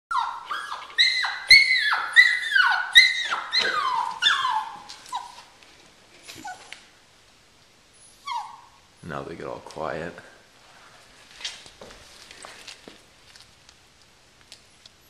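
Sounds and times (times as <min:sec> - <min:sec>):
puppies whining: 0:00.1 - 0:06.9, 0:08.0 - 0:08.9.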